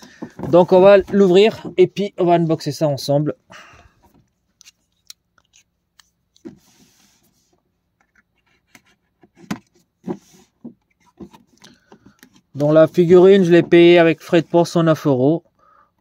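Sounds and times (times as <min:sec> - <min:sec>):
cardboard rustling: 0:00.0 - 0:02.5, 0:06.4 - 0:14.9.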